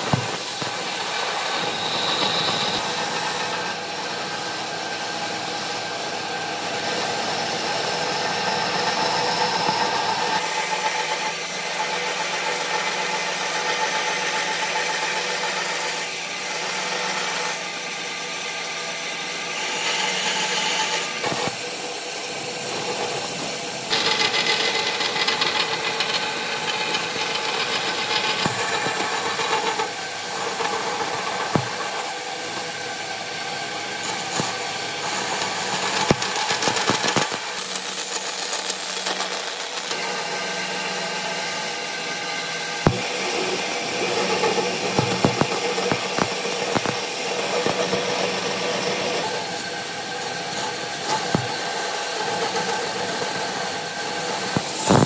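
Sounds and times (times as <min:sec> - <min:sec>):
band saw cutting wood: 0:00.0 - 0:55.0.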